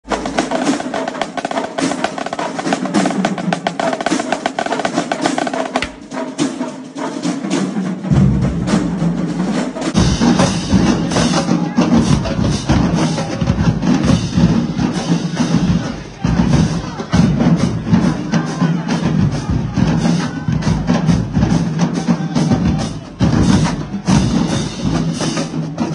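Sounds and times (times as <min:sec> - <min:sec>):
bass drums: 0:00.0 - 0:06.1, 0:08.1 - 0:18.2
snare drum strokes and rolls: 0:00.0 - 0:25.9.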